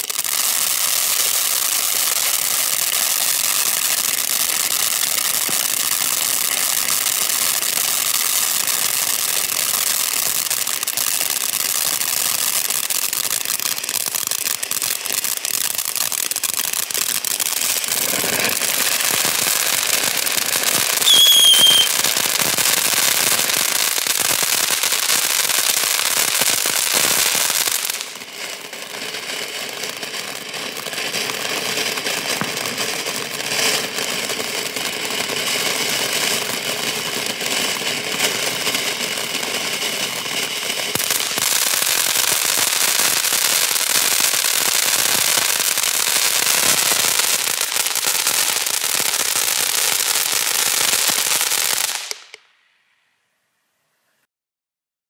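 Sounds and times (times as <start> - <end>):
firework fountain hissing and crackling: 0.0 - 53.0
faint whistle: 21.0 - 22.0.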